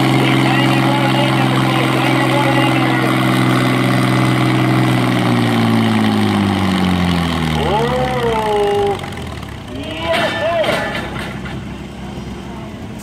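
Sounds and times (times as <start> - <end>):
tractor engine running hard: 0.0 - 13.0.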